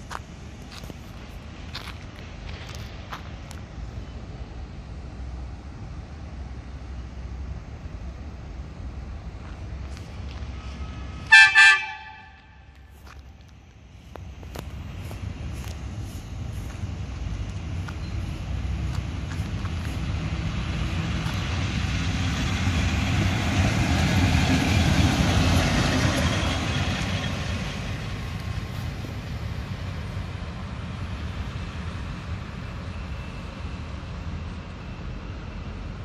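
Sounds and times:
diesel locomotive passing: 0:00.0 - 0:36.0.

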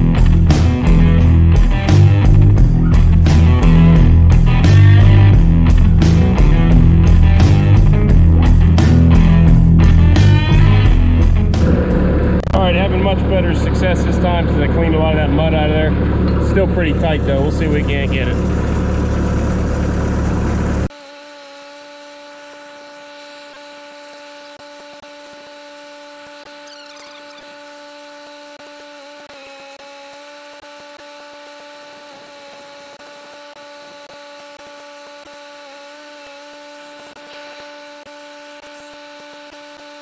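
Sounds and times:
loud diesel engine running: 0:00.0 - 0:20.9
steady hum: 0:00.0 - 0:28.7.

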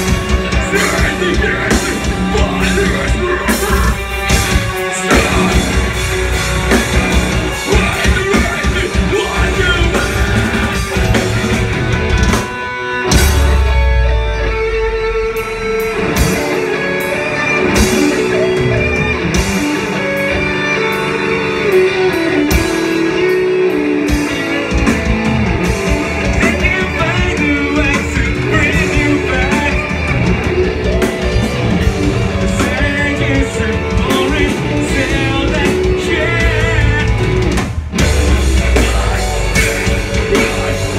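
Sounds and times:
vocals: 0:00.0 - 0:12.0, 0:26.0 - 0:30.7, 0:31.8 - 0:40.9
distorted electric guitars: 0:00.0 - 0:40.9
drum kit: 0:00.0 - 0:40.9
heavy low hit: 0:13.1 - 0:16.6.

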